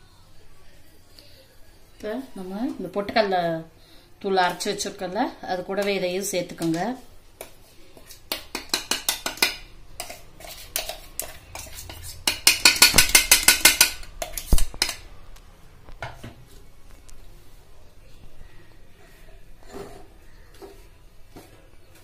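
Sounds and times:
spoon scraping steel bowl: 0:07.4 - 0:15.0, 0:19.1 - 0:20.8.

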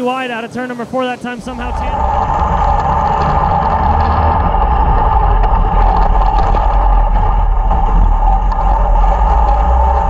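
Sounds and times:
kart engine droning: 0:00.5 - 0:10.0.

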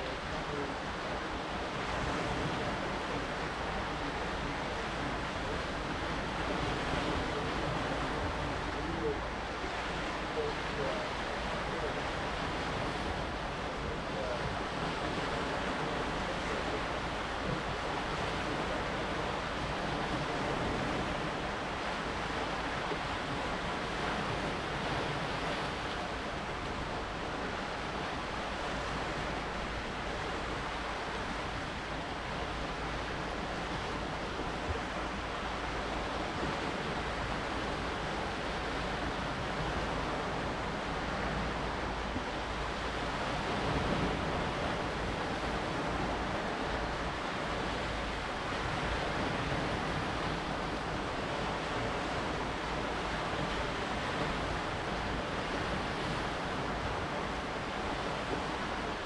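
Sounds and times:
waves washing on rocky shore: 0:00.0 - 0:59.0
wind: 0:00.0 - 0:59.0.

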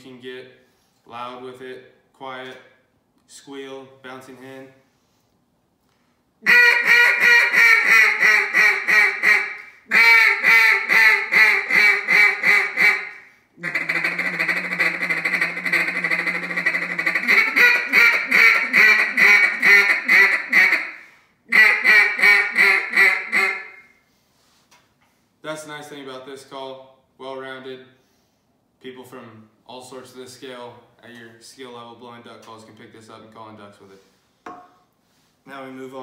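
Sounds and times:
duck call quacks: 0:06.4 - 0:23.9.

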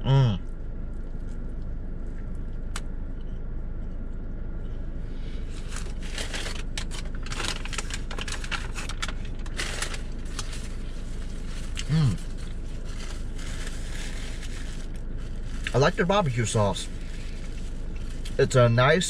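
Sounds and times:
steady low hum: 0:00.0 - 0:19.0
food handling noises: 0:05.5 - 0:18.6.

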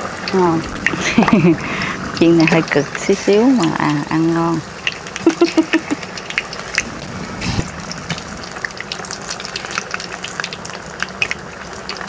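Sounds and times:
fish frying in hot oil: 0:00.0 - 0:12.0.

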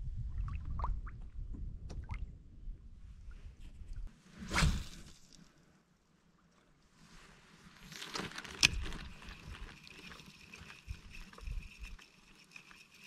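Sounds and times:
fishing reel whirring and ticking: 0:08.6 - 0:13.0.

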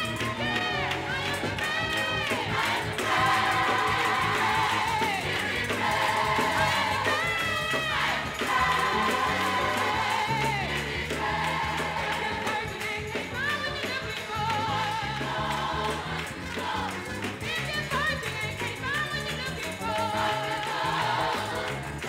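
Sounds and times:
band with bass and beat: 0:00.0 - 0:19.0
gospel choir singing: 0:00.0 - 0:22.0.

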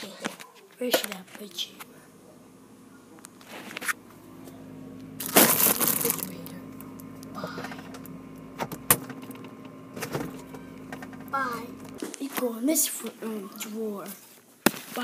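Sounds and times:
faint steady hum: 0:00.0 - 0:14.6.

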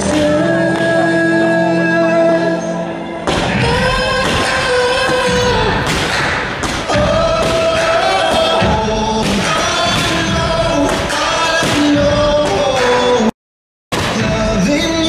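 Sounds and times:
song over sound system: 0:00.0 - 0:13.3, 0:13.9 - 0:15.0
fireworks bursting: 0:03.3 - 0:13.2, 0:13.9 - 0:15.0.

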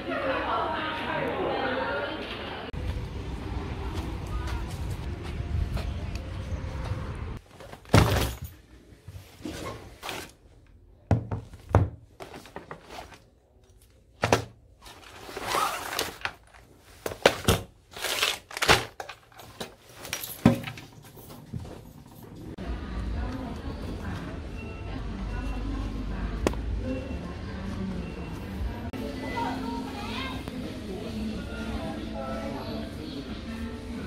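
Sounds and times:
knocks and thunks on desk: 0:11.1 - 0:12.0.

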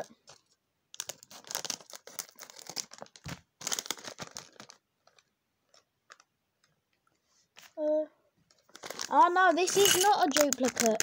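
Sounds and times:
plastic bag crinkling and tearing: 0:00.3 - 0:06.3, 0:08.5 - 0:11.0.

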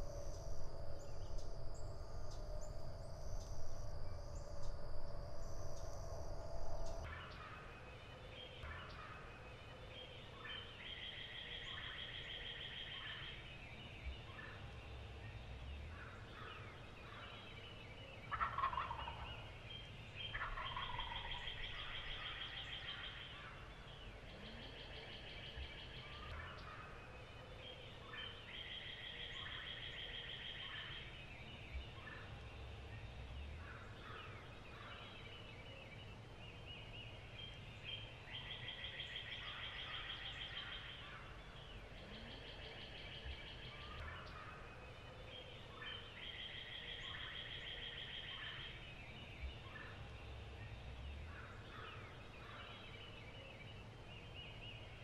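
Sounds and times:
turkey gobbling: 0:18.3 - 0:19.4, 0:20.3 - 0:22.3.

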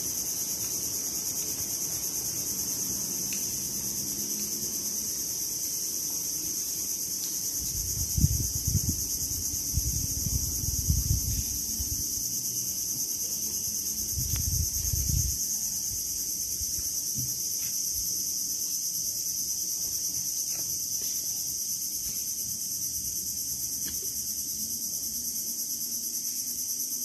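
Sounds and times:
crickets trilling: 0:00.0 - 0:27.0.

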